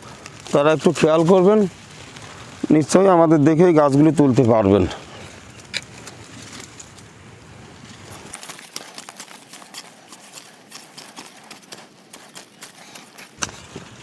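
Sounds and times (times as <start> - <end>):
spade cutting into dry soil: 8.1 - 14.0.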